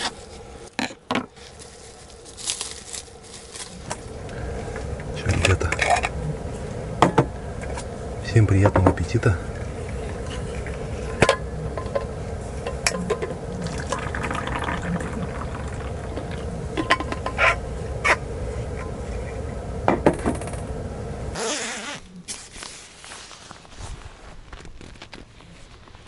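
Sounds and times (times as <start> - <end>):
low background noise: 0.0 - 26.0
hot drink pouring into cup: 13.2 - 17.0.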